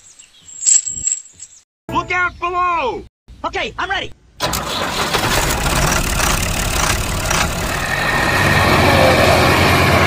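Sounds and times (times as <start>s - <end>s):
tractor engine running: 4.4s - 10.0s.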